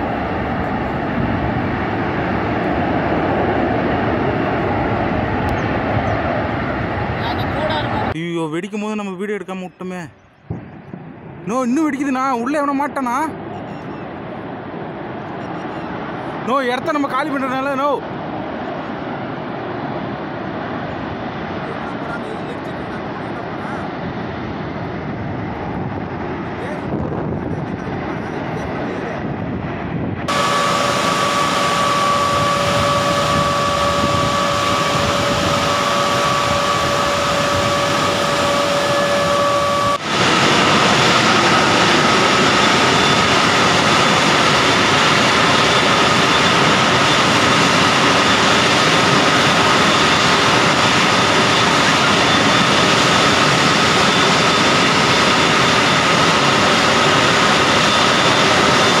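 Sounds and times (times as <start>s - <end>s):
high whistling tones: 30.3s - 40.0s
steam roaring: 30.3s - 59.0s.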